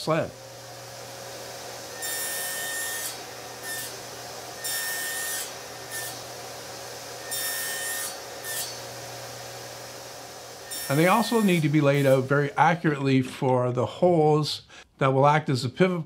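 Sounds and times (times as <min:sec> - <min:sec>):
table saw cutting wood hiss: 0:00.0 - 0:12.8.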